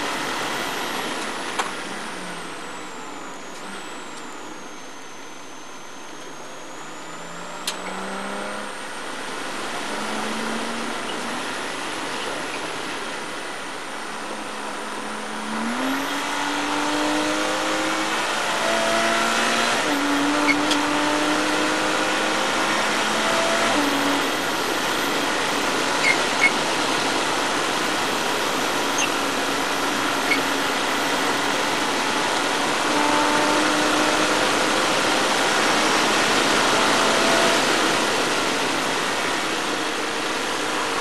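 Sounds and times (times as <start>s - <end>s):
race car engine accelerating: 0.0s - 41.0s
wind and road noise: 0.0s - 41.0s.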